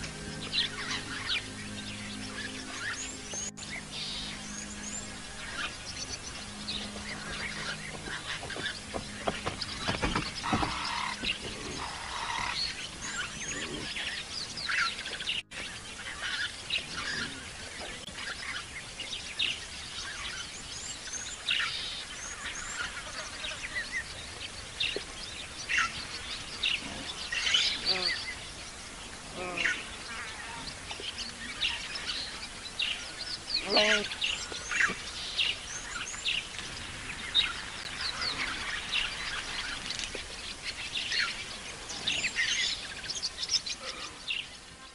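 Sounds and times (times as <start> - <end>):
birds chirping: 0.0 - 44.9.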